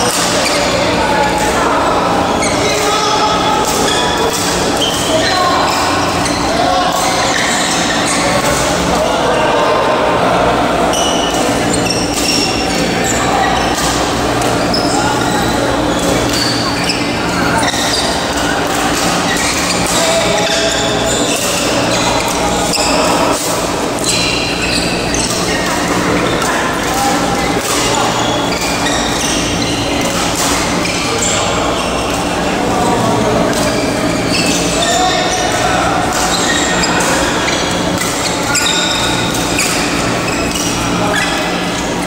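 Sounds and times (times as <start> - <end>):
shoes squeaking on court floor: 0.0 - 9.3, 10.6 - 42.0.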